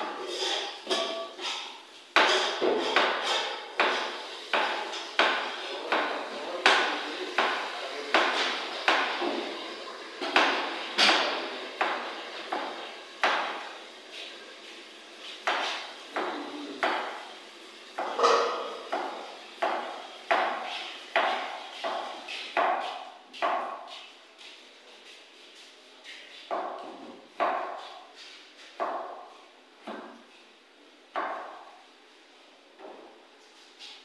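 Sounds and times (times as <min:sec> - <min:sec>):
sharp knocking on kitchen counter: 0:03.8 - 0:09.4, 0:18.0 - 0:23.8.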